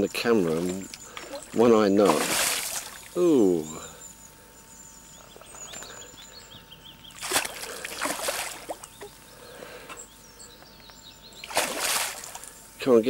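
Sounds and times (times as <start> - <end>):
fish splashing at water surface: 0.6 - 3.1, 7.2 - 8.9, 11.4 - 12.5.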